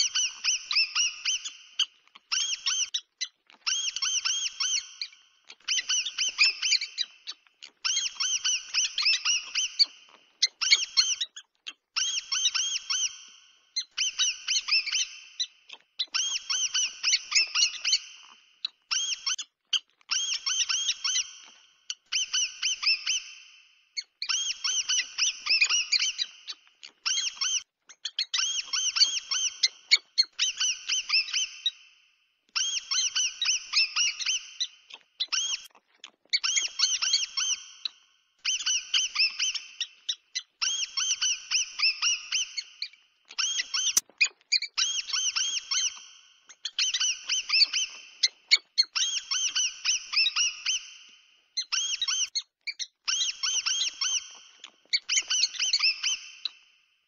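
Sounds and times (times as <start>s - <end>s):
mouse squeaks: 0.0s - 31.9s, 32.5s - 56.7s.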